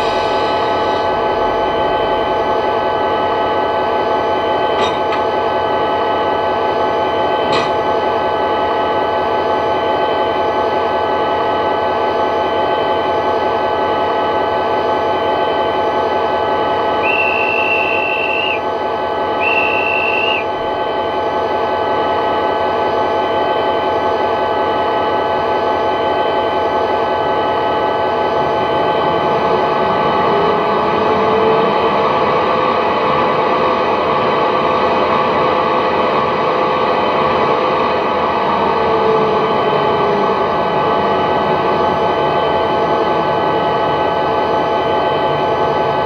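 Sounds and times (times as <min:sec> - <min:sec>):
cooling fan rumble and whine: 0:13.6 - 0:46.0
guard's whistle: 0:17.0 - 0:18.7, 0:19.4 - 0:20.6.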